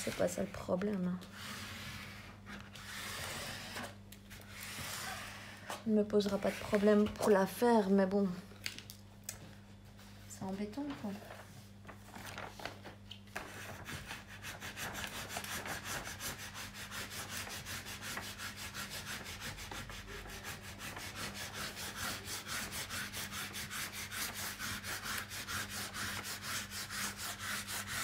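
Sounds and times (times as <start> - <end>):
low steady hum: 0.0 - 14.1.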